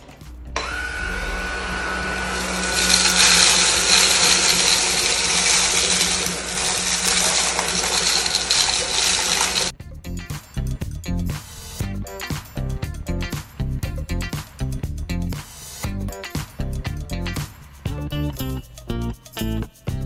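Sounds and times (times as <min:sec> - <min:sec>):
vacuum cleaner whine: 0:00.6 - 0:09.7
vacuum sucking up grain: 0:00.6 - 0:09.7.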